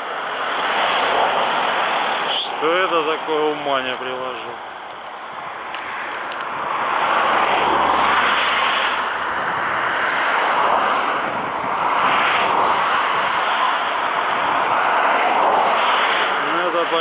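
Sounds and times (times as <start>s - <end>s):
road traffic rushing: 0.0s - 17.0s.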